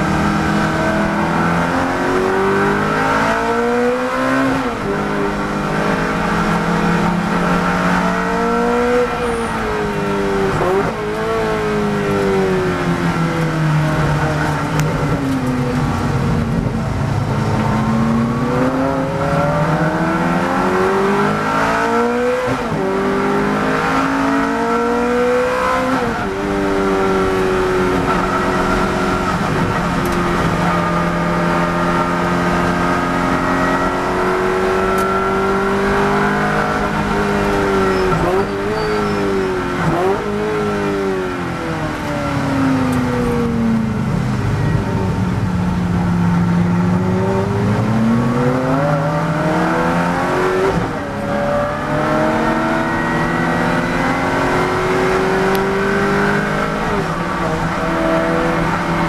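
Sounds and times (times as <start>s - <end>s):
race car engine: 0.0s - 59.0s
throttle blips on downshifts: 13.1s - 40.6s.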